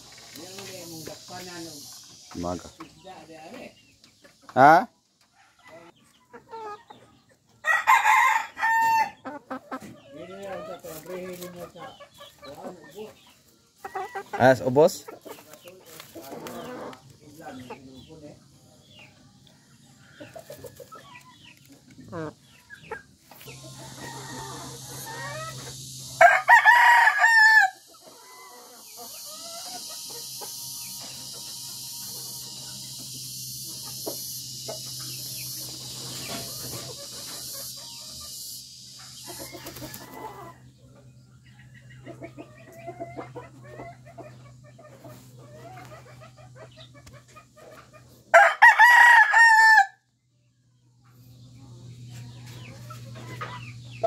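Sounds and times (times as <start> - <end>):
steady high hiss: 0.0 - 4.8, 23.4 - 40.5
chickens clucking: 0.0 - 49.8, 50.4 - 54.0
rooster crowing: 7.6 - 9.2, 23.6 - 25.5, 26.2 - 28.8, 48.3 - 50.0.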